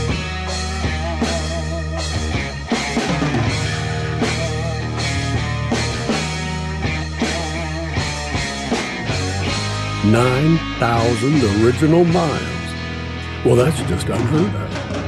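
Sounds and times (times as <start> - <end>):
drum kit beat: 0.0 - 12.6, 13.3 - 15.0
sustained bass line: 0.0 - 15.0.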